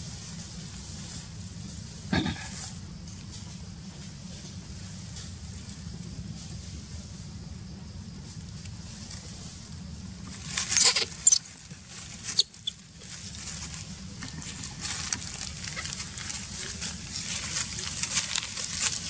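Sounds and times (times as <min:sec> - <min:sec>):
dry straw rustling and crackling: 0:04.0 - 0:19.0.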